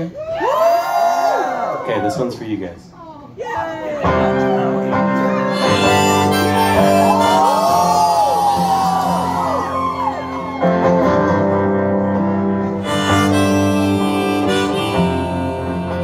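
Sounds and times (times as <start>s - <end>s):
harmonica: 5.5s - 9.8s, 12.7s - 16.0s.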